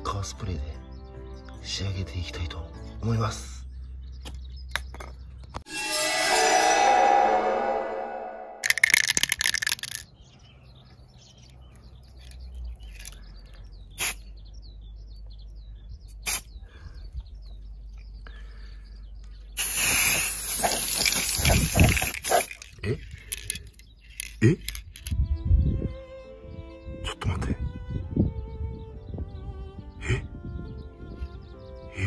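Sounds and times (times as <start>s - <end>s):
birds chirping faintly: 0.0s - 8.6s, 9.7s - 32.0s
spray can hissing: 14.0s - 14.2s, 16.2s - 16.5s, 19.6s - 22.6s.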